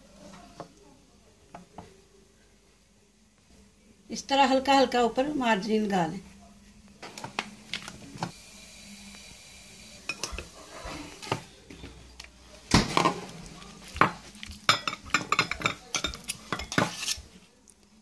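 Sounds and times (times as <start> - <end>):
pot and plate clinking: 14.0 - 17.1.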